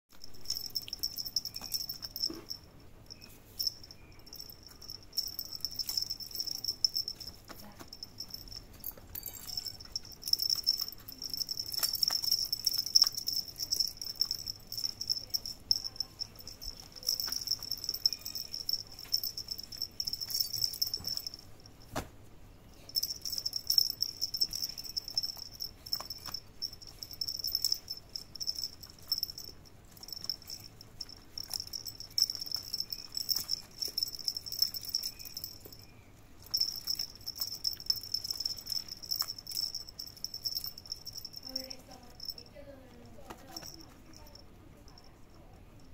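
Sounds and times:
clicks and rattles of cat toys: 0.2s - 21.9s, 36.4s - 45.9s.

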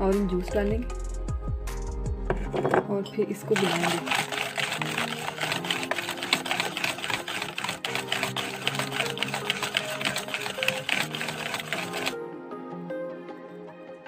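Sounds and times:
background music: 0.0s - 14.0s
whisk clattering against bowl: 3.6s - 12.2s.

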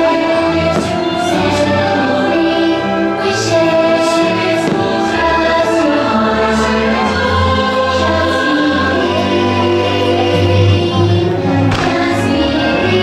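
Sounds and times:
choir singing held chords: 0.0s - 13.0s.

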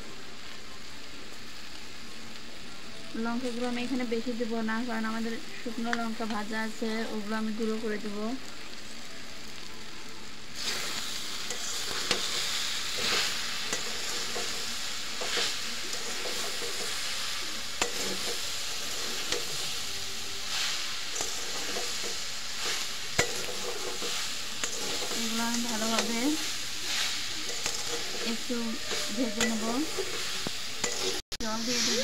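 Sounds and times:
food sizzling in a pan: 0.0s - 32.0s
metal spatula scraping: 10.6s - 32.0s.

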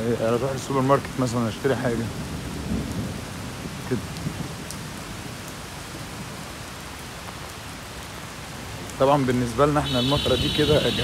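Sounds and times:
rain on pavement and cars: 0.0s - 11.0s.

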